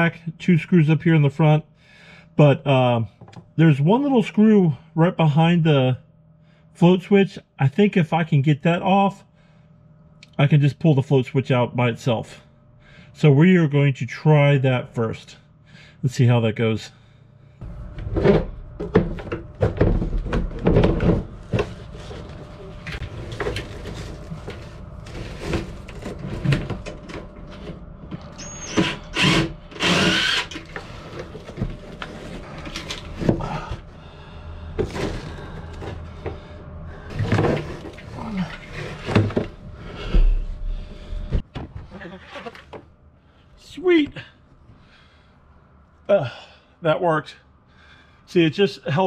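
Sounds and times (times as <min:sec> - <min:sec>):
cordless drill running: 0:28.5 - 0:31.1.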